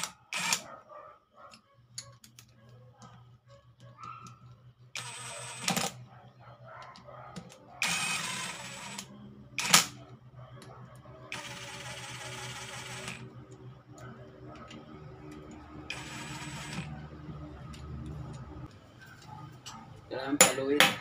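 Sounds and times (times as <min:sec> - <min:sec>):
power driver spinning: 0:00.0 - 0:00.7, 0:02.4 - 0:06.1, 0:06.9 - 0:19.3.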